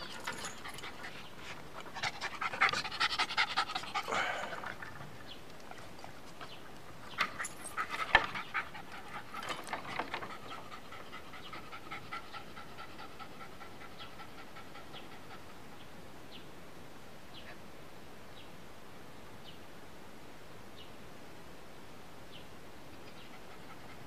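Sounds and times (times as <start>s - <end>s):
dog panting: 0.0s - 6.6s, 7.3s - 15.6s.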